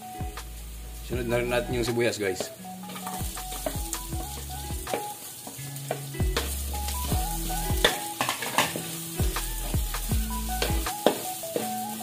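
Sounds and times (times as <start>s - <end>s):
background music: 0.0s - 12.0s
garlic and onions sizzling in oil: 0.0s - 12.0s.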